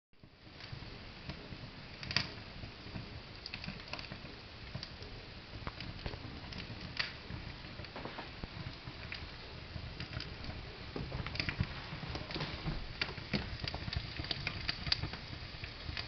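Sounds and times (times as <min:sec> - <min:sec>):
fireplace flame fluttering: 0:00.2 - 0:16.0.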